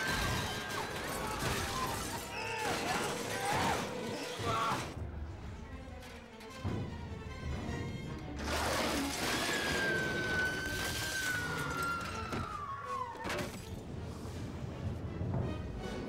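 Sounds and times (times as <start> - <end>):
crashing and shattering: 0.0 - 5.0, 8.4 - 13.9.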